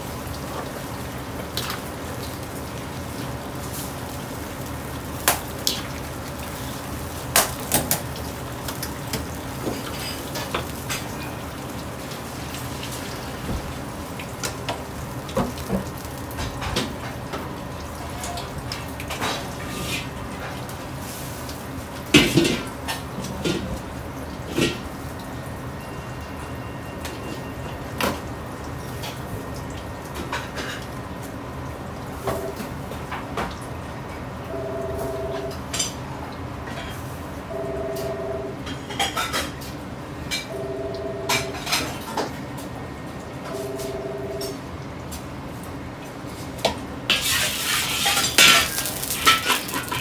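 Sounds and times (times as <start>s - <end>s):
loud clatter of pots: 22.2s - 23.8s, 47.1s - 50.0s
metal utensils clanking on wok: 47.1s - 50.0s
running tap: 47.4s - 50.0s.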